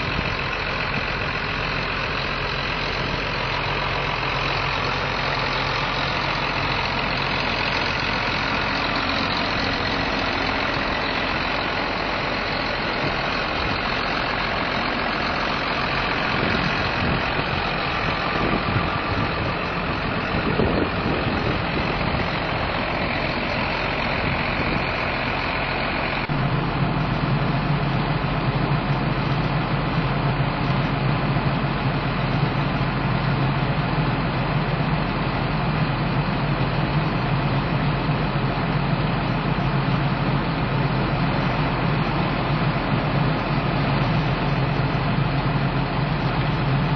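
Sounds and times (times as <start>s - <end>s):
tractor diesel engine idling: 0.0s - 46.9s.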